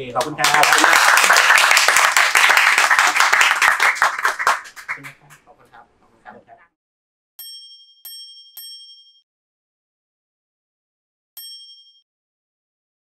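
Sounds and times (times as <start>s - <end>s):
bright metallic chime dings: 7.4s - 9.2s, 11.4s - 12.0s.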